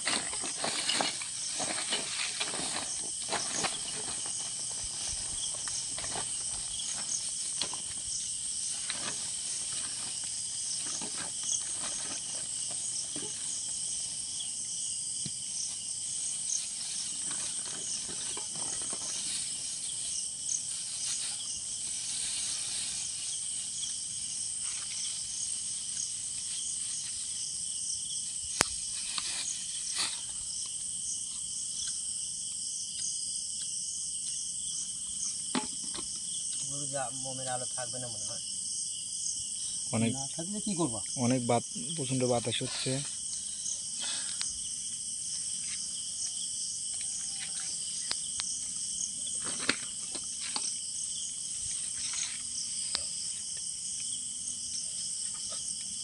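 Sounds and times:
rustles and knocks of handling: 0.0 - 13.9, 16.2 - 23.8
crickets chirring: 0.0 - 56.0.

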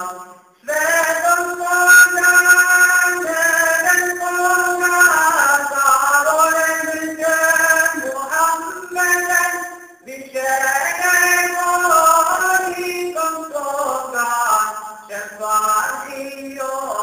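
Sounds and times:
man singing a devotional hymn: 0.0 - 17.0.

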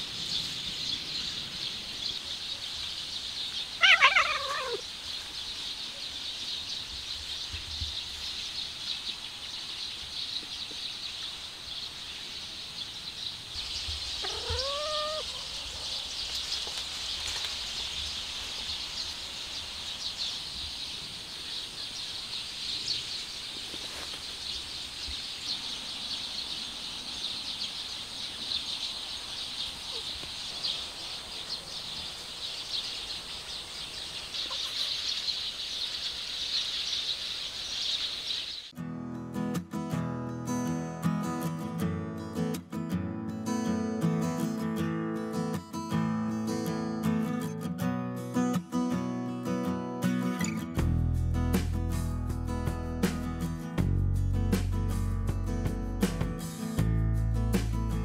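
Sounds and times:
insects chirring and chirping: 0.0 - 38.8
cat meowing: 3.8 - 4.8, 14.2 - 15.4.

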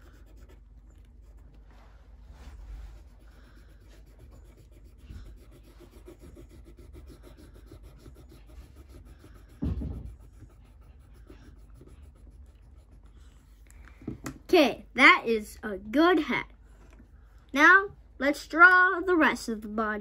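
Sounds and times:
pencil scratching on paper: 0.0 - 1.6, 2.5 - 13.6
dull thump: 9.5 - 10.4.

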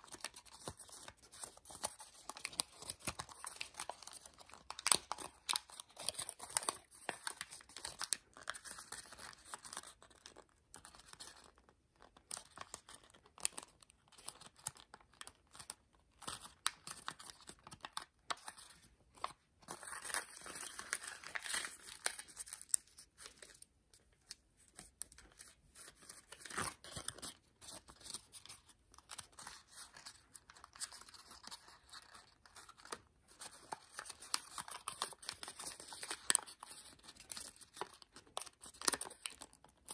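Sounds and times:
paper rustling and crinkling: 16.3 - 39.9.

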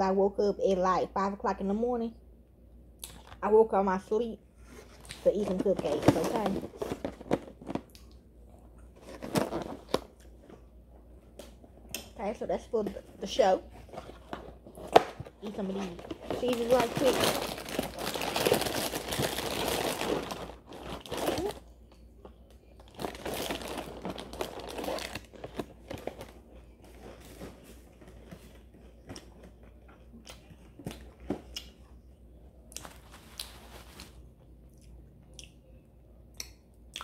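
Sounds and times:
snack packaging crinkling: 5.0 - 8.2, 9.0 - 10.4, 13.9 - 21.6, 22.8 - 31.1, 32.8 - 34.3.

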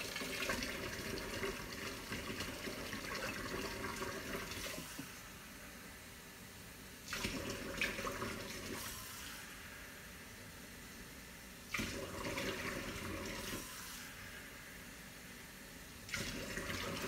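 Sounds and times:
water pouring into container: 0.0 - 5.0, 7.1 - 9.2, 11.7 - 14.1, 16.1 - 17.0.

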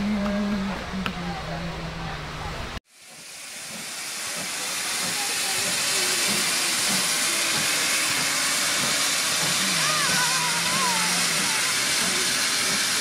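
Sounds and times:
steam hissing: 2.8 - 13.0.

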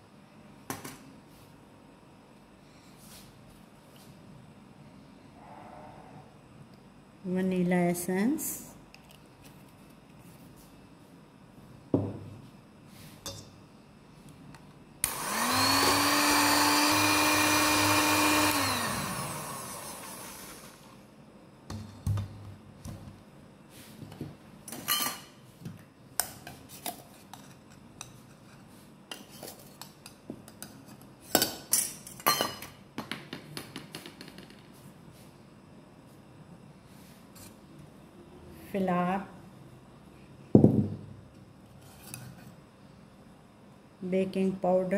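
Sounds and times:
electric hand mixer whirring: 15.0 - 21.0.

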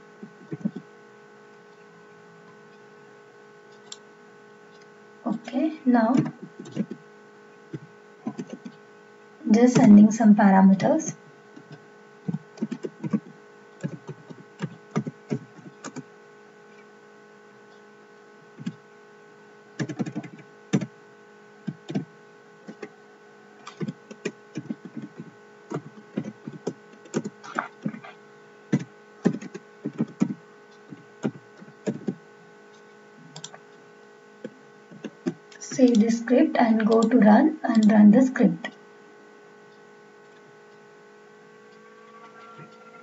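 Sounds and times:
steady hum: 0.0 - 43.0
keyboard typing: 0.4 - 0.8, 6.1 - 7.0, 7.7 - 8.8, 11.6 - 16.1, 19.8 - 20.9, 21.6 - 22.1, 23.6 - 28.1, 28.7 - 32.2, 33.3 - 33.6, 34.9 - 38.7.

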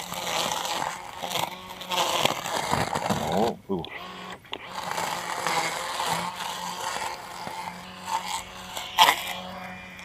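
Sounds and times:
string trimmer motor hum: 0.0 - 10.0.

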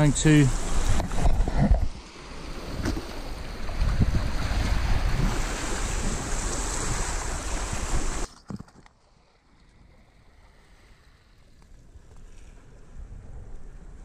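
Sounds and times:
wind buffeting microphone: 0.0 - 8.3
waves breaking over rocks: 0.0 - 14.0.

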